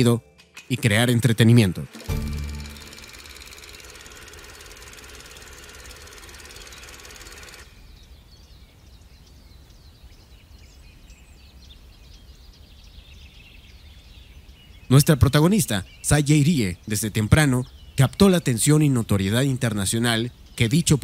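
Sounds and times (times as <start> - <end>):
low hum: 0.0 - 7.8
bird chirps: 5.7 - 21.0.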